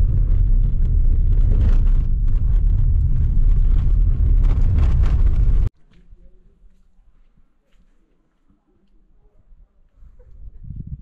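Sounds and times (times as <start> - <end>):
car tyres rumbling on dirt road: 0.0 - 5.7.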